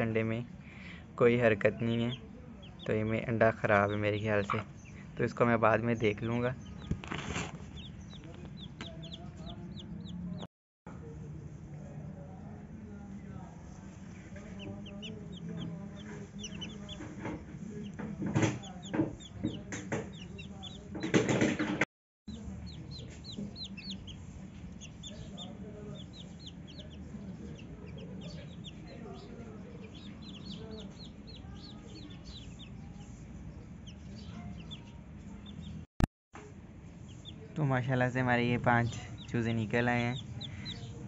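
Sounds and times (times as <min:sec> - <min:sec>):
chicks peeping: 0:00.0 - 0:10.5, 0:13.6 - 0:35.9, 0:36.9 - 0:41.0
loud knocks: 0:20.9 - 0:21.8.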